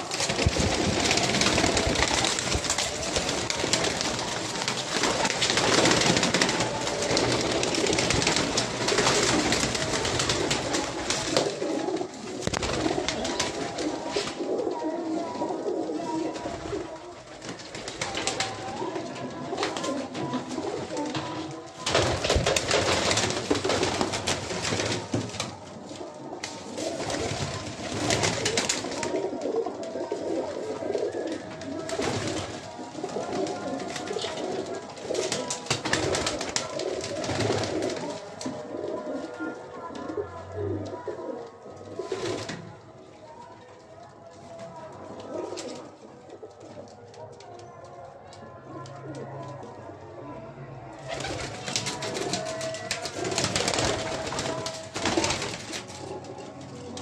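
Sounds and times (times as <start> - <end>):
wings flapping: 0.0 - 42.8, 51.0 - 57.0
pigeons cooing: 0.0 - 43.0.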